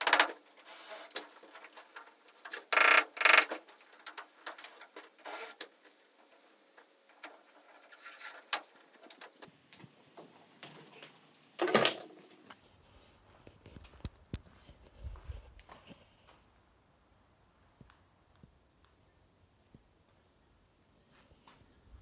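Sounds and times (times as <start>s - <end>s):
hand tool clicks: 2.7s - 3.5s
loud rasping burst: 2.7s - 3.6s, 5.2s - 5.6s.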